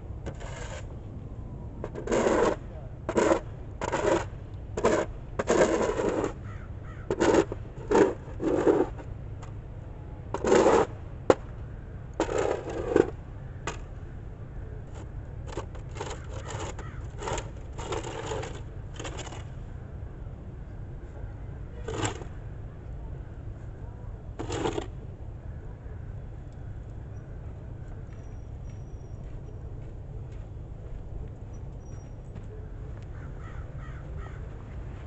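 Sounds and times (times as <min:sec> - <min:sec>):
snow shovel scraping concrete: 0:00.3 - 0:00.9, 0:01.9 - 0:06.4, 0:07.1 - 0:09.0, 0:10.4 - 0:10.9, 0:12.2 - 0:13.1, 0:15.6 - 0:19.4, 0:21.8 - 0:22.3, 0:24.4 - 0:24.9.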